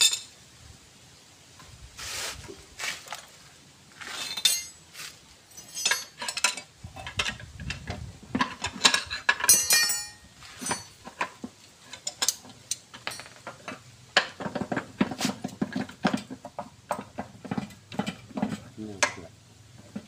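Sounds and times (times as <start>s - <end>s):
tools clinking against metal case: 4.2s - 4.8s, 5.5s - 7.8s, 8.4s - 11.3s, 11.9s - 13.8s
ringing metal clink: 4.3s - 4.8s, 9.4s - 10.9s.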